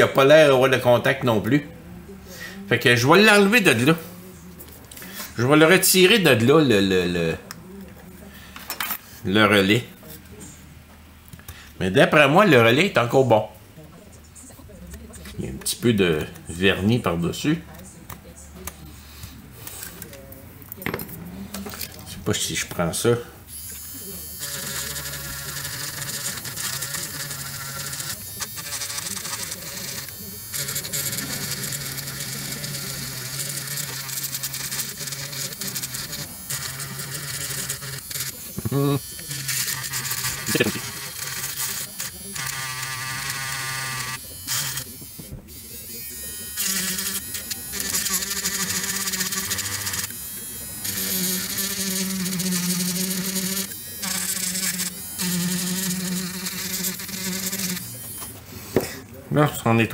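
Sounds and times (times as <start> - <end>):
small motorised tool buzzing: 23.5 - 58.9.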